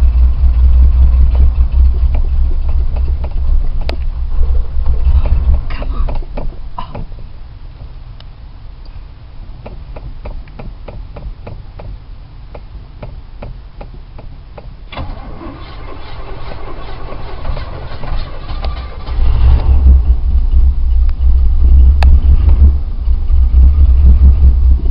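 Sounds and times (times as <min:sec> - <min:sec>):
car engine rumbling: 0:00.0 - 0:24.9
ignition clicks: 0:01.8 - 0:04.1
car starter cranking: 0:14.9 - 0:20.1.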